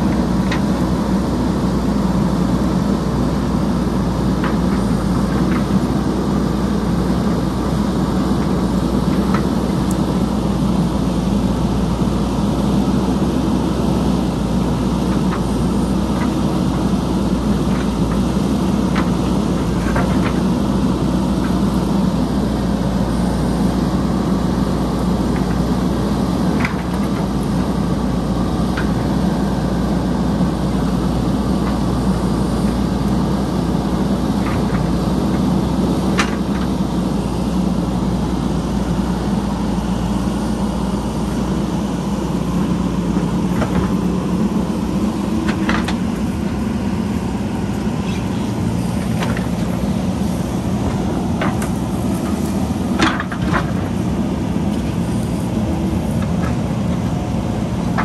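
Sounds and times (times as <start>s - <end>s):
backhoe diesel engine running: 0.0s - 58.0s.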